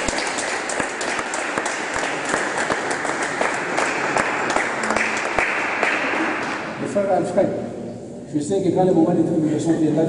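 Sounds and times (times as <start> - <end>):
people applauding: 0.0 - 6.8.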